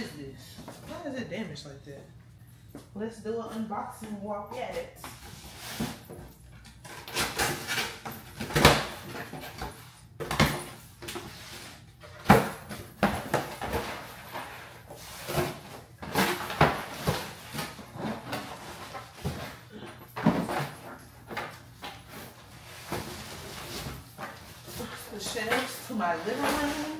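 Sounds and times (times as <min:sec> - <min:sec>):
cardboard boxes rustling and scraping: 0:12.8 - 0:26.9.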